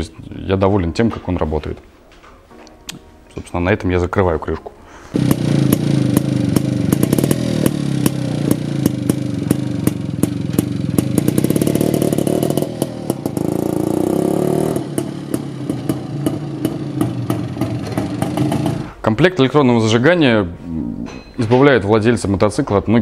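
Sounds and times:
motorcycle engine popping: 5.2 - 18.9.

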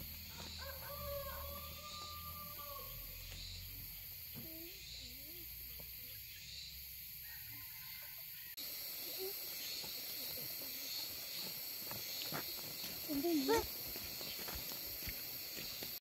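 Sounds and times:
footsteps on a path: 0.0 - 3.5, 9.6 - 16.0
high insect buzz: 0.0 - 16.0.

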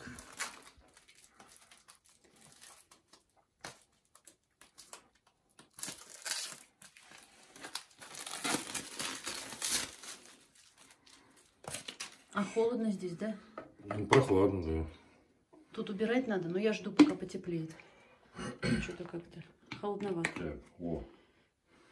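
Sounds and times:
plastic wrapping crinkling: 0.0 - 12.4.

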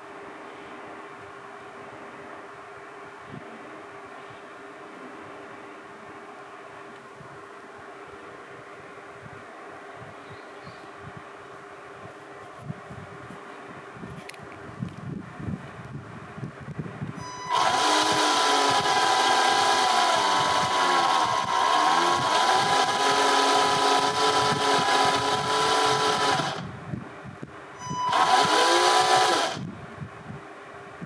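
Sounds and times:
small electric motor whining: 17.2 - 26.7, 27.8 - 29.8.

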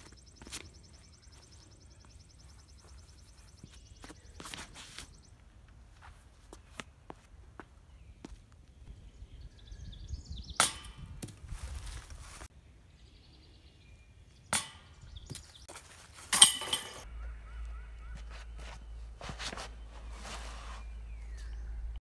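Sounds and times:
rustling: 11.3 - 12.5.

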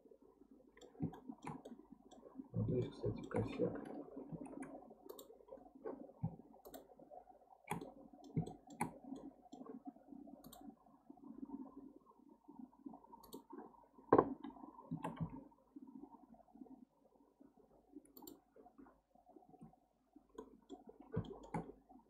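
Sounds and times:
faint low background noise: 0.0 - 22.0
computer mouse and keyboard clicks: 0.8 - 2.2, 2.8 - 5.3, 6.2 - 6.9, 7.7 - 9.7, 10.4 - 10.7, 13.2 - 13.5, 14.2 - 15.4, 18.1 - 18.4, 20.4 - 21.8.

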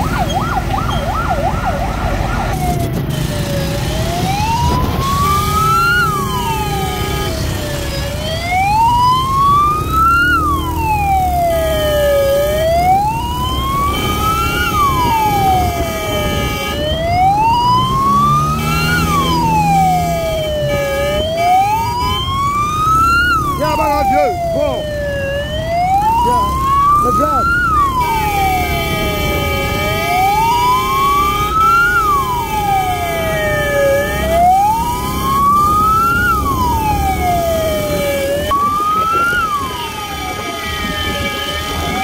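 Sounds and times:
steady siren tone: 0.0 - 42.0
wail siren: 0.0 - 42.0
motorcycle engines running: 2.3 - 42.0.

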